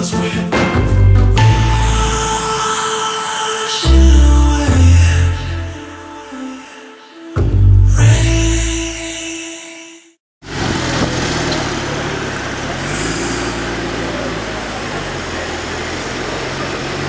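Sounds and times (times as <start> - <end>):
music: 0.0 - 9.4
car engine idling: 10.4 - 17.0
street noise: 10.4 - 17.0.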